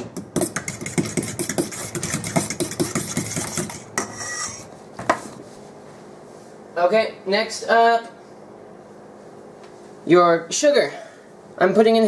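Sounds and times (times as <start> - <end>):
fork scraping a mixing bowl: 0.2 - 4.7.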